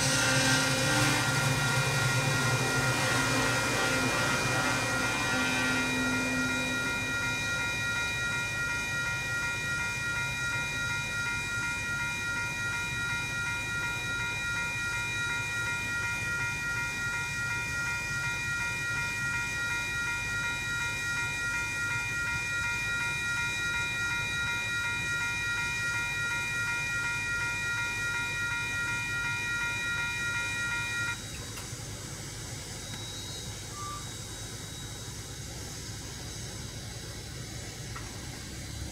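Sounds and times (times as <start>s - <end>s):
railroad crossing bells ringing: 0.0s - 38.9s.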